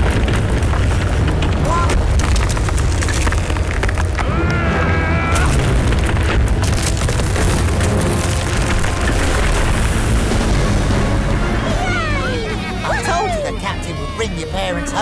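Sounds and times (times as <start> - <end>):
ice cracking and crunching: 0.0 - 11.6
deep rumble: 0.0 - 12.9.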